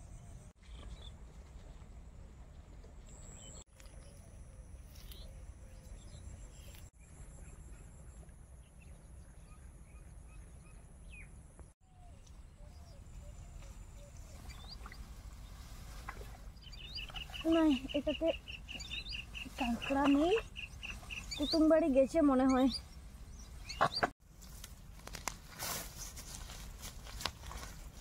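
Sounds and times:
faint bird chirps: 3.1 - 24.1.

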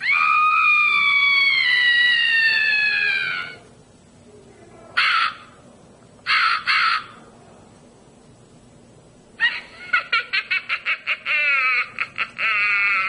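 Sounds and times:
recorded scream falling in pitch: 0.0 - 3.7
crow cawing: 5.0 - 5.6, 6.3 - 7.3.

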